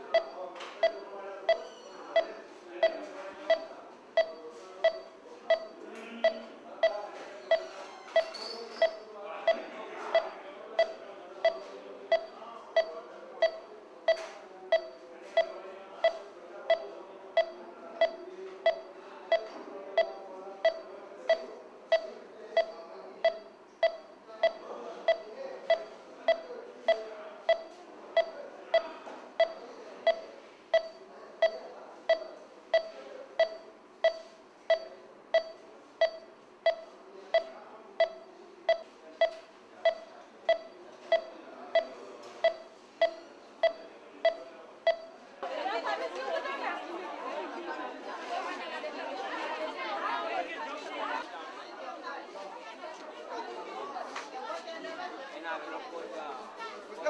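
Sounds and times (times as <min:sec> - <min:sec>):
patient monitor pulse beeps: 0:00.0 - 0:45.2
faint background noise: 0:00.0 - 0:57.0.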